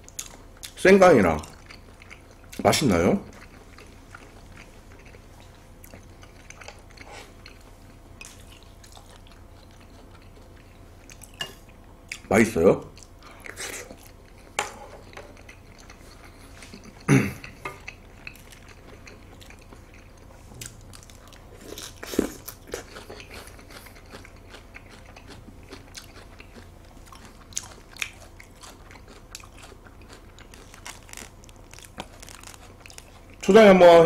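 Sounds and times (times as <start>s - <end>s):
wet mouth chewing seafood: 13.0s - 33.5s
soft crunching: 17.7s - 33.5s.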